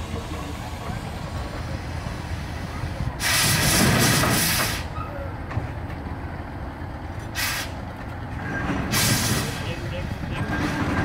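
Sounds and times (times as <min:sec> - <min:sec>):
steam hissing blast: 0:03.2 - 0:04.9, 0:07.4 - 0:07.8, 0:08.9 - 0:09.6.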